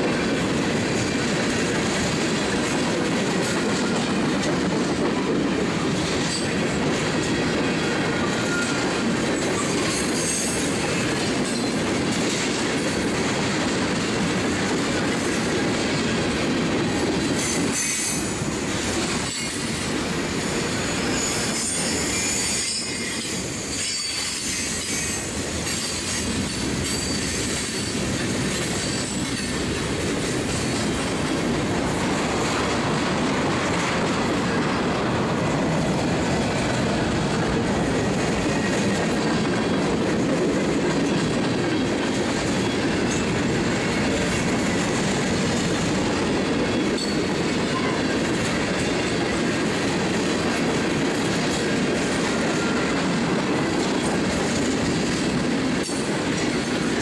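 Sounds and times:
train wheels rumbling on rail: 0.0 - 57.0
high-pitched wheel squeal: 8.2 - 8.9, 20.9 - 25.3.

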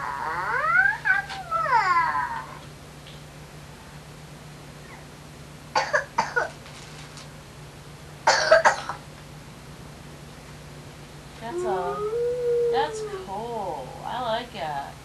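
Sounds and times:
faint steady hum: 0.0 - 15.0
person coughing: 5.8 - 6.5, 8.3 - 9.0.

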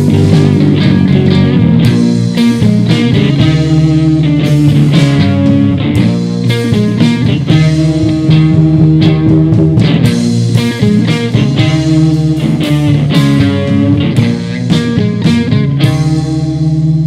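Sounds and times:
bass guitar: 0.0 - 17.0
drum kit with cymbal hits: 0.0 - 17.0
electric guitars: 0.0 - 17.0.

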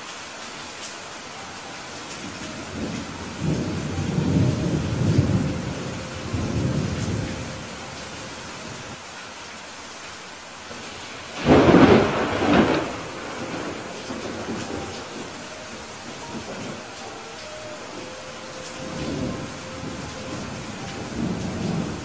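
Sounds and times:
steady rain: 0.0 - 22.0
thunder rumbling: 1.8 - 9.0, 10.7 - 22.0
loud thunderclap: 11.4 - 15.4.

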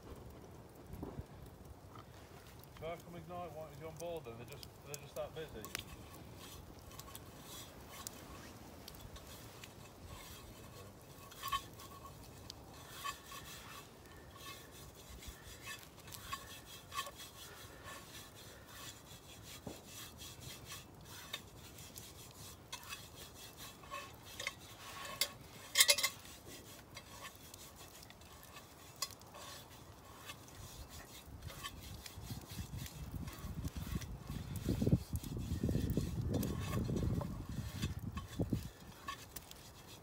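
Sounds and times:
hands rubbing inside a pot: 2.2 - 40.0
metal clatter: 23.8 - 26.2.

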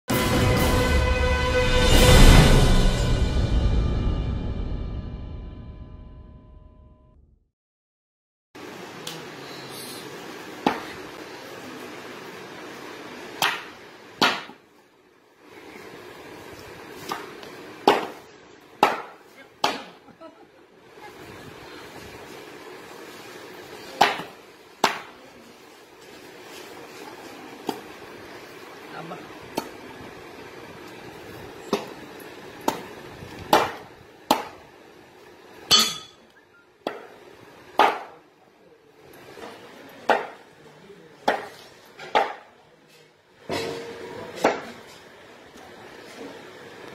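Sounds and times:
knife chopping on wooden log: 18.8 - 19.9, 37.8 - 38.1, 41.3 - 42.4.

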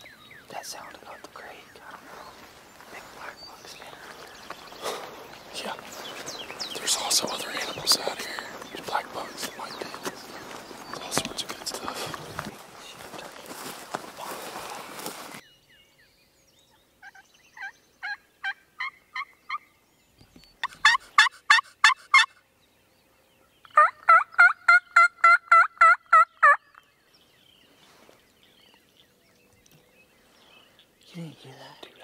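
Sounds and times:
footsteps rustling through grass: 1.8 - 15.4, 27.6 - 28.4
turkey call hen yelps: 20.6 - 22.3, 23.8 - 26.7.

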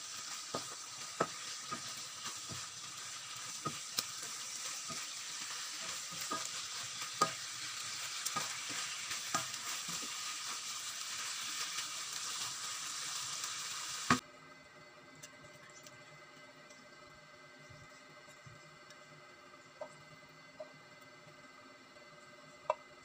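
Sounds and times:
food sizzling in a wok: 0.0 - 14.2
spatula tapping and scraping pan: 0.1 - 10.3.

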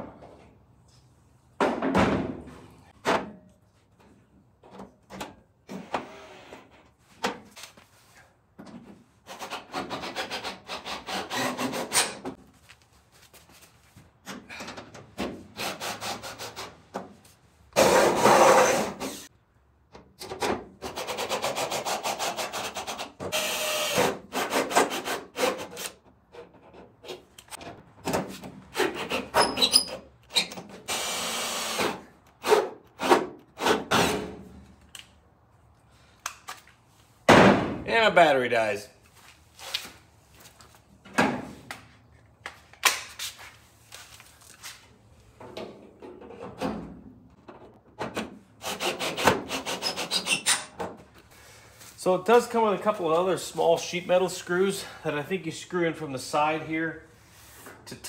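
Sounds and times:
cordless drill into sheet metal: 9.4 - 12.2, 21.0 - 26.0, 30.4 - 33.8.

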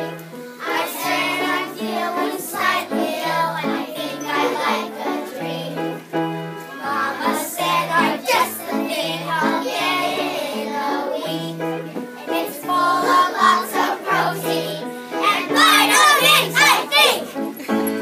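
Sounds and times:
children singing: 0.0 - 17.5.

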